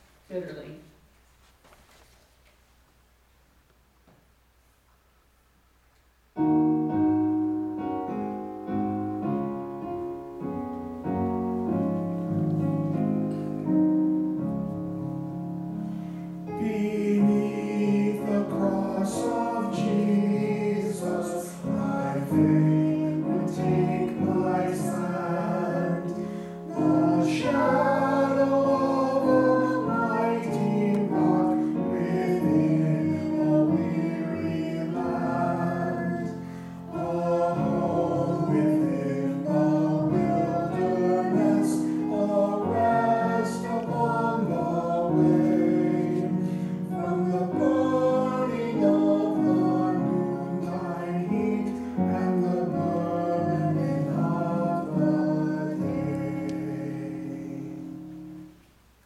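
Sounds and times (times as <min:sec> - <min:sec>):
electric keyboard chords: 0:06.4 - 0:58.6
man singing: 0:16.5 - 0:45.4, 0:46.9 - 0:58.0.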